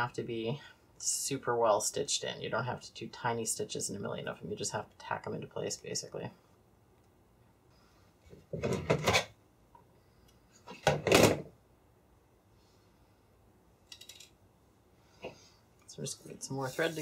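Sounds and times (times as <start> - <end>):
tools scraping and rattling on table: 8.3 - 9.4, 13.9 - 14.4.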